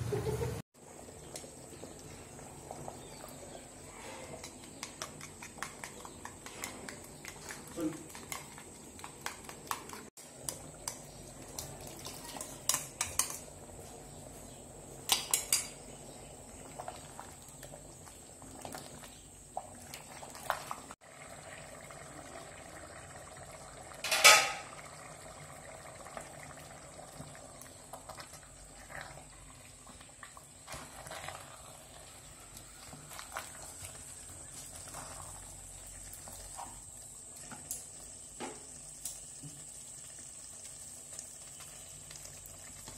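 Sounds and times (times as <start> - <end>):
metal utensils clinking on pots: 11.6 - 13.6, 15.0 - 15.9, 24.0 - 24.8.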